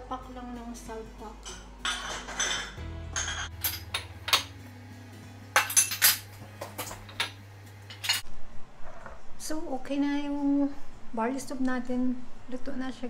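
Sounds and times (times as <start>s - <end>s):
plates and cutlery clinking: 1.4s - 4.6s, 5.6s - 8.2s.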